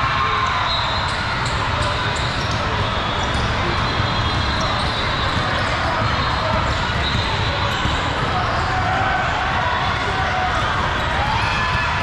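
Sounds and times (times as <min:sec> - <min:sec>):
crowd chatter: 0:00.0 - 0:12.0
basketballs bouncing: 0:01.1 - 0:08.9.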